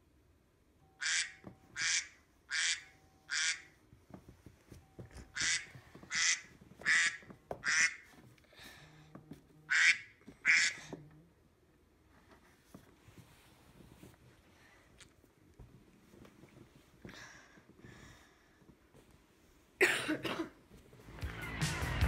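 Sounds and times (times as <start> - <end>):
phone alarm duck quacks: 0.9 - 3.8, 5.3 - 8.1, 9.7 - 10.9.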